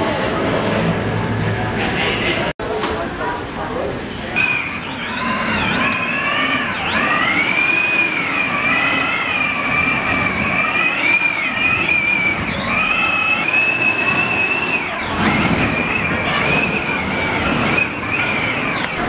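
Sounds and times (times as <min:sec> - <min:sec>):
high wavering wind whistle: 0:04.4 - 0:19.0.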